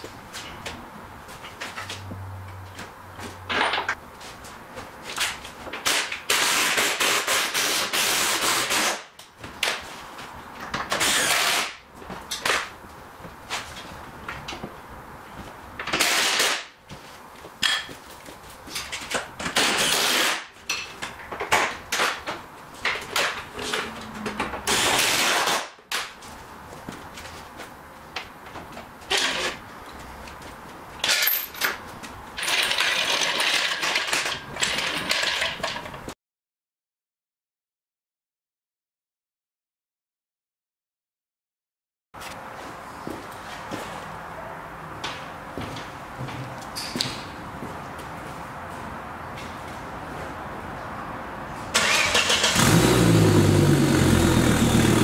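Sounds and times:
loud rasping bursts: 5.9 - 9.1, 11.0 - 11.8, 51.8 - 55.0.

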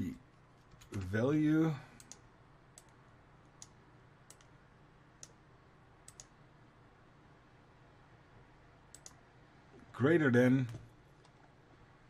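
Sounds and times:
computer mouse clicks: 2.0 - 4.5, 5.2 - 5.4, 6.0 - 6.4, 8.9 - 9.2.

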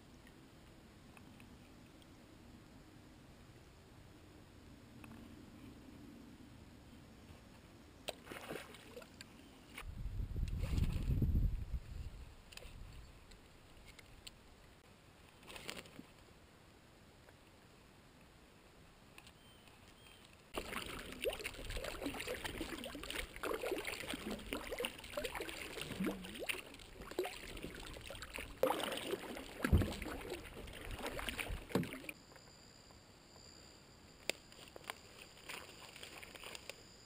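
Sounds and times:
paddle strokes splashing water: 20.6 - 32.2.

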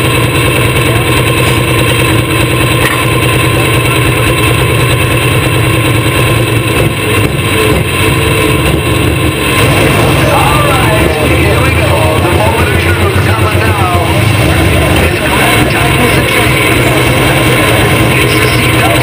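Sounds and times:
tractor diesel engine idling: 0.0 - 19.0.

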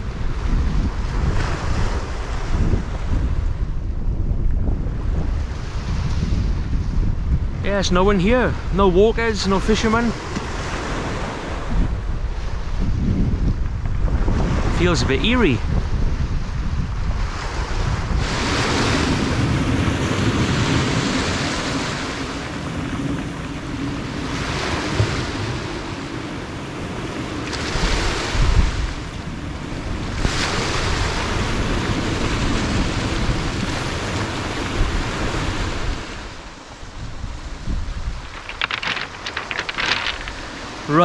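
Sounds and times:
wind on microphone: 0.0 - 41.0
waves washing over shingle: 7.6 - 13.0, 13.9 - 41.0.

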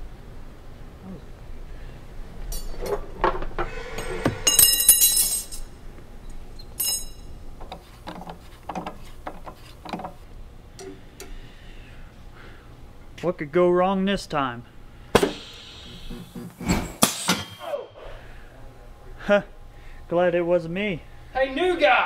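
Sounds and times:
metallic clinks and clatter: 2.5 - 3.0, 4.5 - 7.3.

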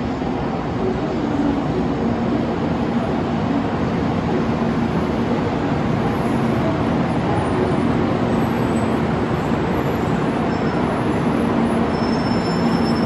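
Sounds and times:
train rushing and rumbling: 0.0 - 13.0
faint high brake whine: 5.6 - 13.0.

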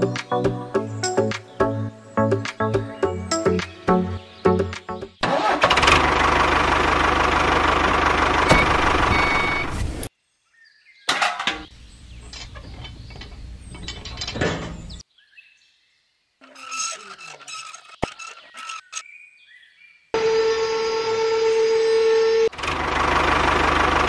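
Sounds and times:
tractor engine running: 5.2 - 10.1, 11.7 - 15.0, 22.5 - 24.0.

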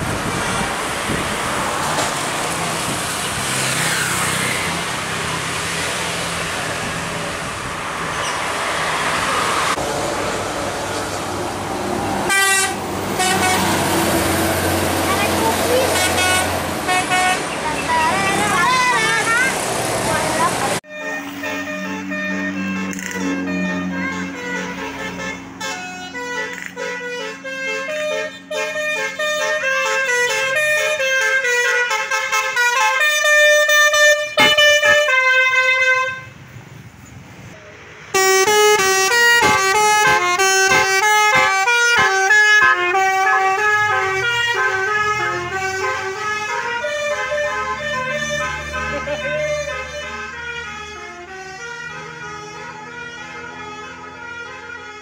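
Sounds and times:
musical air horn melody: 12.3 - 14.0, 15.8 - 17.5, 20.8 - 36.3, 38.2 - 55.0.

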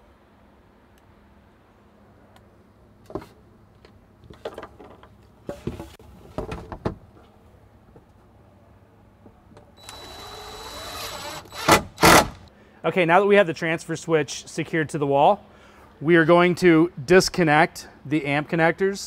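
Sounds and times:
cordless drill whirring: 9.8 - 12.3.

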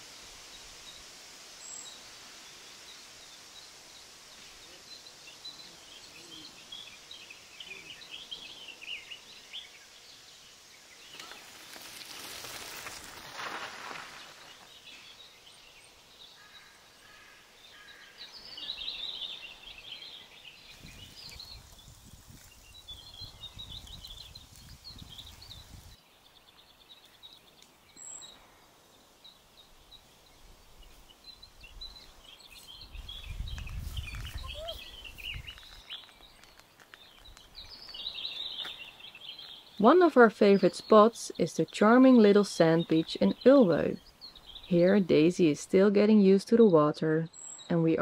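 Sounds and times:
small birds chirping: 0.0 - 48.0
wind rumble on microphone: 20.7 - 26.0, 32.8 - 35.9.

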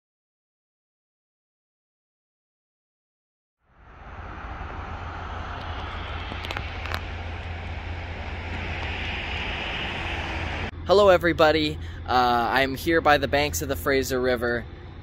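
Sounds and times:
road traffic rumble: 3.6 - 15.0.

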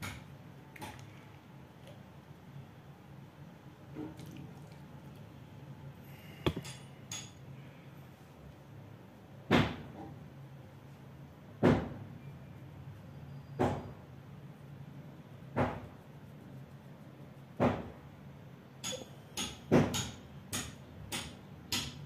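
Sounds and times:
knocks on work surface: 6.5 - 6.7, 15.6 - 15.8
faint low hum: 12.0 - 19.2.

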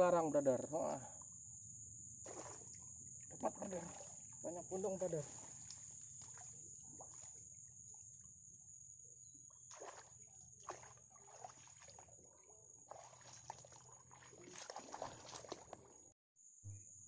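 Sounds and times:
splashing of shallow water: 2.2 - 7.5, 9.6 - 16.1.

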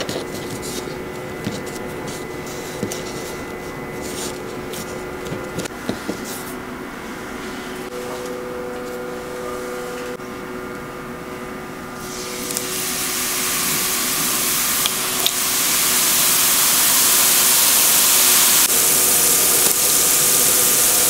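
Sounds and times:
steady electrical hum: 0.0 - 21.0.

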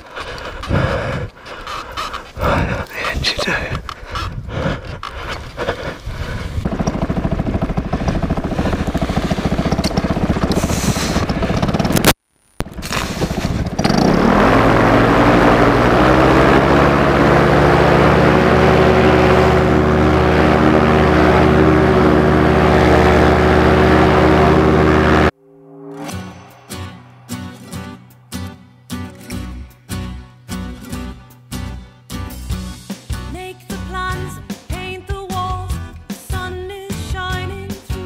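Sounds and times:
paramotor engine droning: 5.7 - 12.1, 12.9 - 26.3.

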